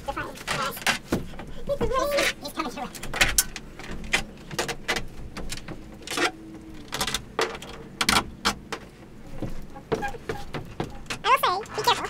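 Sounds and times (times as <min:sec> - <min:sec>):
skylight frame knocks and rattles: 0:02.9 - 0:06.2, 0:07.0 - 0:12.0.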